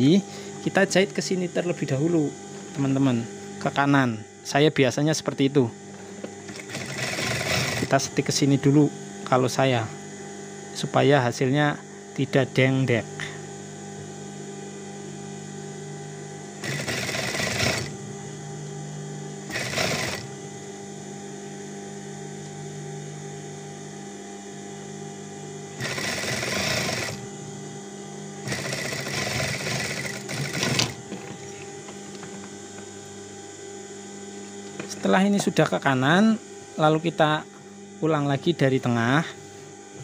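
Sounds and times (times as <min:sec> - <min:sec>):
steady machine hum: 0:00.0 - 0:40.0
sewing machine stitching: 0:06.5 - 0:07.9, 0:16.6 - 0:17.9, 0:19.5 - 0:20.3, 0:25.8 - 0:27.2, 0:28.4 - 0:31.0.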